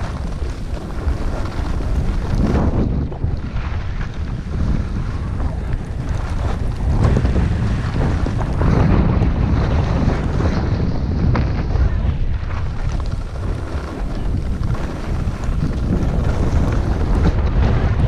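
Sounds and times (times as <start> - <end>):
skis hissing over snow: 0.0 - 2.9, 3.5 - 10.8, 12.4 - 17.3
wind buffeting microphone: 0.0 - 18.0.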